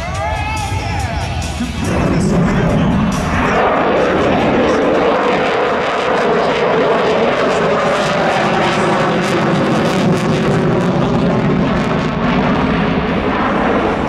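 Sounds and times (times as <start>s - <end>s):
aircraft engine noise: 0.0s - 14.0s.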